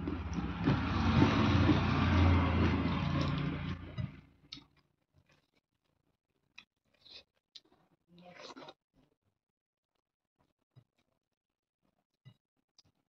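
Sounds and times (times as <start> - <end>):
low hum: 0.0 - 4.4
motor vehicle passing: 0.0 - 4.4.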